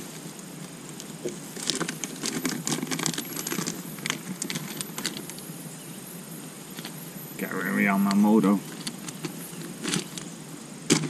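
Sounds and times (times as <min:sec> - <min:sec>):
plastic packaging crinkling: 0:00.0 - 0:05.5, 0:08.0 - 0:10.3.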